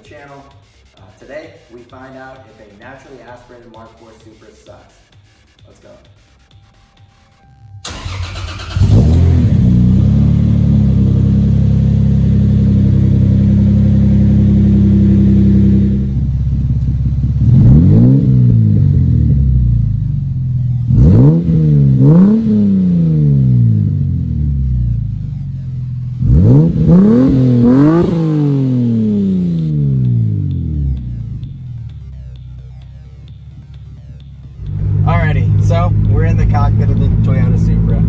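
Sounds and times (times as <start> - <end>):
car engine starting and idling: 7.6 - 38.0
engine revving: 7.8 - 38.0.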